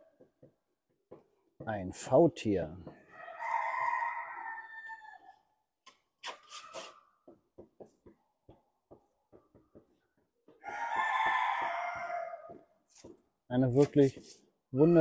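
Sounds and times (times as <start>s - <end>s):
rooster crowing: 3.1s - 5.5s, 10.6s - 12.6s.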